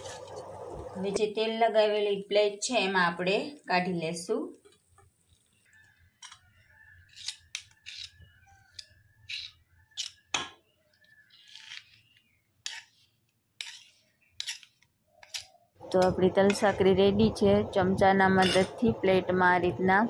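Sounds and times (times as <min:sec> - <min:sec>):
spoon scraping metal pan: 0:07.0 - 0:10.3, 0:11.3 - 0:16.7, 0:18.3 - 0:18.8.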